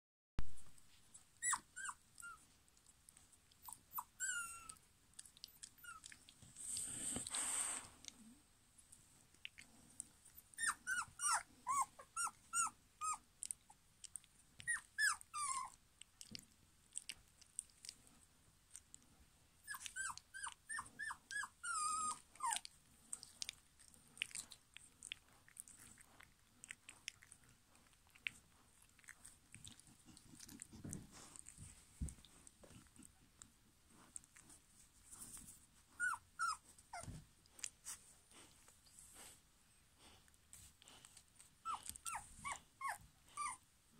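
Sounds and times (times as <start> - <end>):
puppies mouthing and chewing: 0.6 - 43.7
puppies yelping: 1.4 - 2.4, 10.5 - 13.2.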